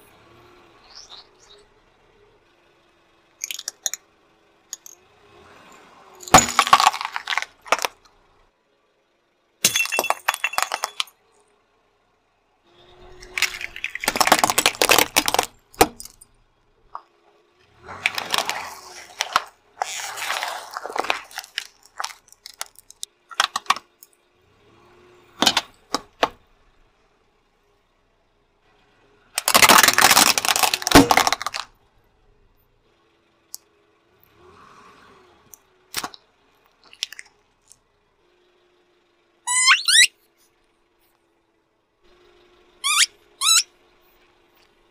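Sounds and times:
tyre crushing objects: 6.3s - 8.0s, 17.9s - 22.7s, 29.4s - 31.6s.

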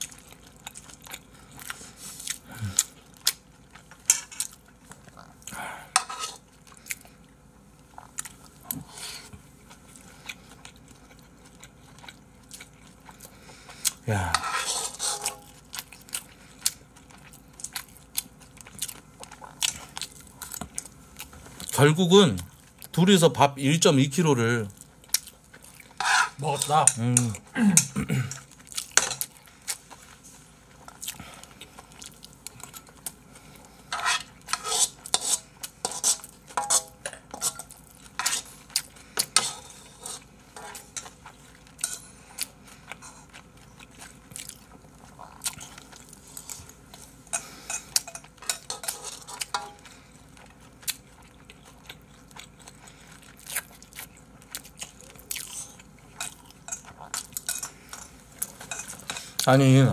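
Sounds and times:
metal spoon scraping frying pan: 6.0s - 6.4s, 14.3s - 15.4s, 26.0s - 27.0s, 33.9s - 38.5s, 39.4s - 41.0s.

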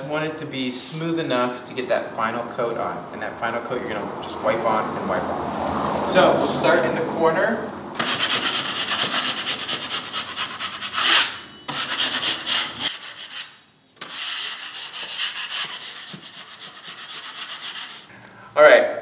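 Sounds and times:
drywall knife scraping: 8.0s - 18.1s.

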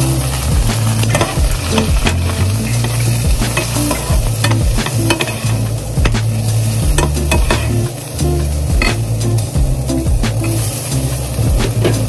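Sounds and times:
vegetables sizzling in a pan: 0.0s - 12.0s
spoon tapping and scraping pan: 1.0s - 6.2s, 6.9s - 7.8s.

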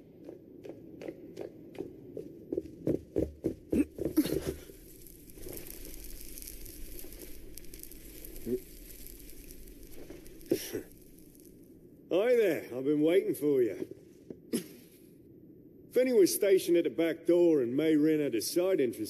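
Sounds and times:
steady hiss: 3.8s - 19.0s.

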